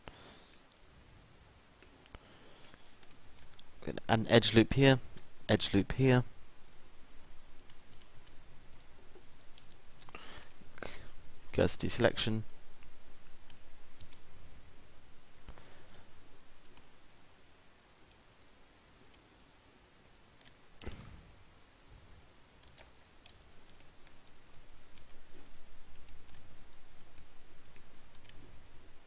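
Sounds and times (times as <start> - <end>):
computer mouse clicks: 1.8 - 3.8, 7.6 - 10.2, 12.8 - 14.3, 15.2 - 16.0, 17.8 - 21.1, 22.6 - 28.5.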